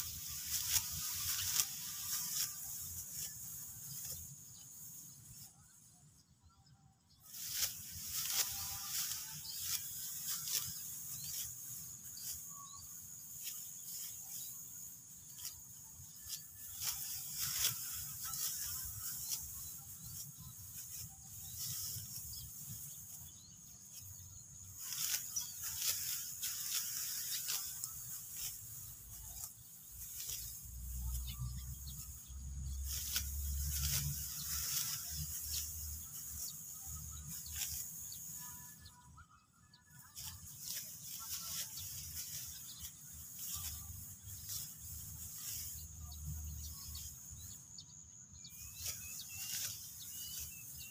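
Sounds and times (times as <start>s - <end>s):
straw crackling and rustling: 0.0s - 5.1s, 7.2s - 38.4s, 40.0s - 47.5s, 48.4s - 50.9s
sickle cutting dry stalks: 0.0s - 5.8s, 7.2s - 39.0s, 39.8s - 47.8s, 48.4s - 50.9s.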